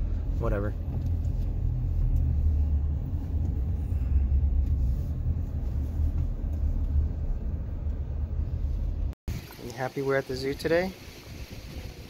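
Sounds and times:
wind buffeting microphone: 11.1 - 12.0.

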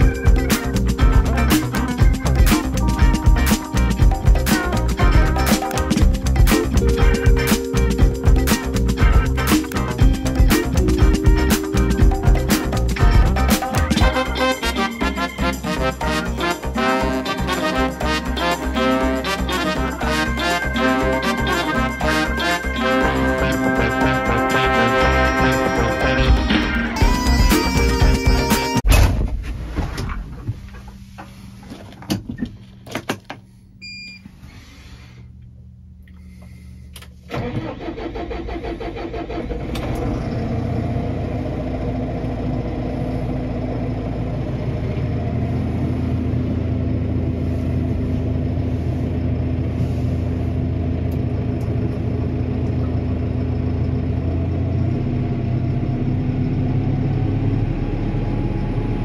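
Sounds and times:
tractor diesel engine idling: 37.5 - 57.2.

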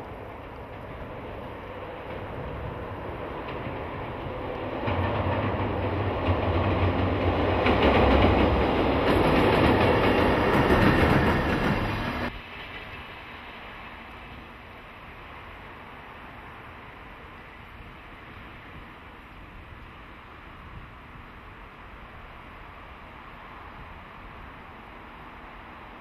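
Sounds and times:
train wheels clattering on track: 0.0 - 14.5.

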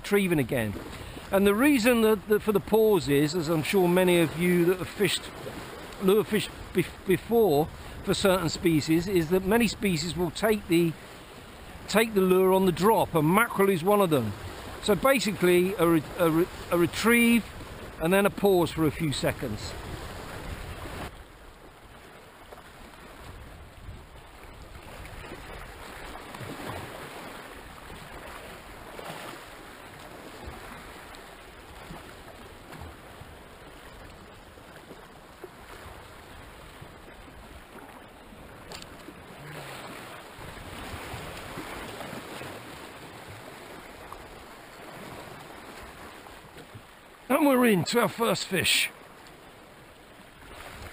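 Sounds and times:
waves washing against rocks: 0.0 - 21.1, 47.3 - 48.9.

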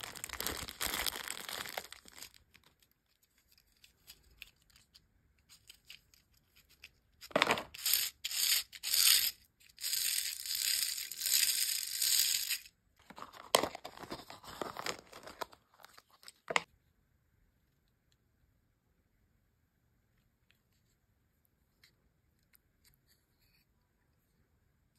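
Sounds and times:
plastic toy pieces clicking: 7.6 - 12.7.

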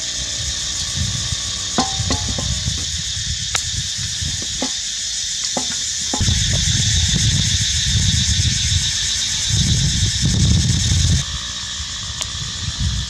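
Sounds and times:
high insect drone: 0.0 - 13.0
water pouring into metal pot: 1.6 - 3.0, 4.4 - 4.8, 5.4 - 6.6.

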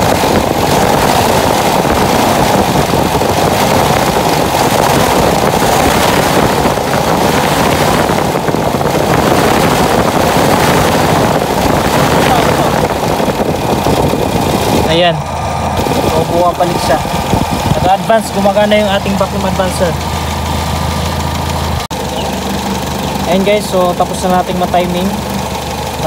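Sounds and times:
engine running at raised revs: 0.0 - 26.0
radiator fan whirring: 0.0 - 26.0.

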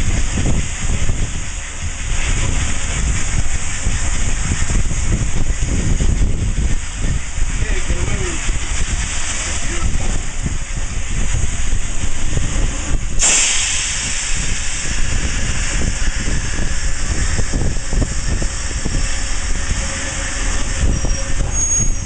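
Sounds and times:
hissing steam: 0.0 - 22.0
low rumble: 0.0 - 22.0.

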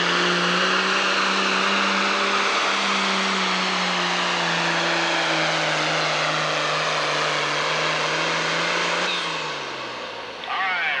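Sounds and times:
tractor diesel engine under load: 0.0 - 11.0.

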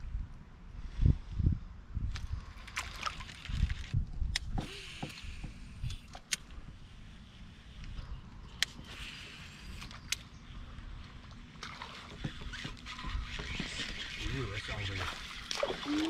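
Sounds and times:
water sloshing: 10.9 - 16.0.

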